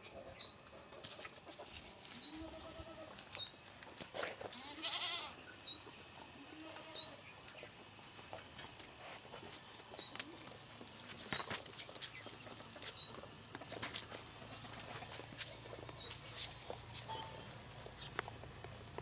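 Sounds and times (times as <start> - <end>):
hens clucking: 0.0 - 18.5
goats bleating: 2.1 - 3.2, 4.5 - 5.5, 6.2 - 7.2.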